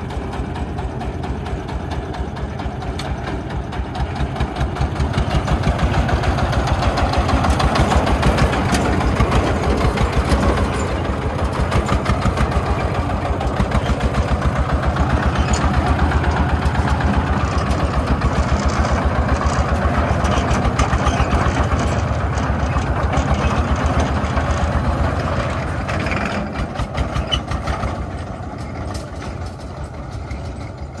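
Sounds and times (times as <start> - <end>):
diesel truck engine chugging: 0.0 - 31.0.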